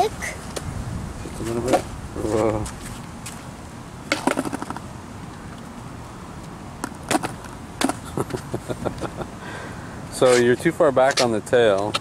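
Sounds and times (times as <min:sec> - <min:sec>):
skateboard clattering: 0:04.1 - 0:04.9, 0:06.8 - 0:08.1.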